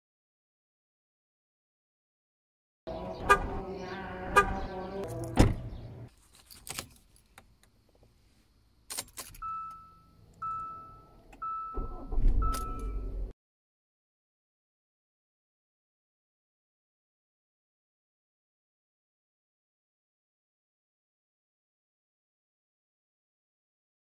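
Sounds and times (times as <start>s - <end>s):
engine revving low rumble: 2.9s - 6.1s
dashboard chime beeps: 9.4s - 13.3s.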